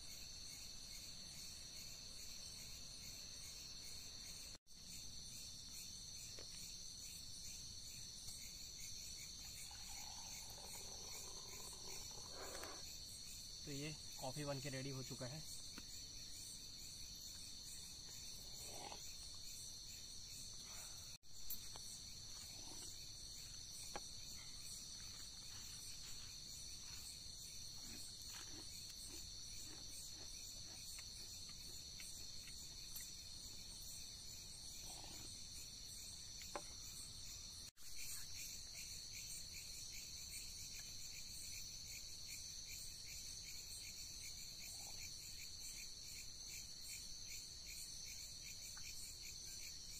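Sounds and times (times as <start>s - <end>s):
crickets chirping: 0.0s - 49.9s.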